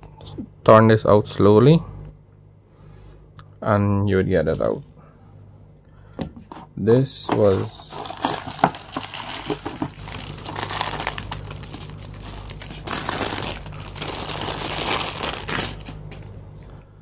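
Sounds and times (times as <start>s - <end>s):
steady low hum: 0.0s - 17.0s
crinkling and rustling: 7.3s - 16.4s.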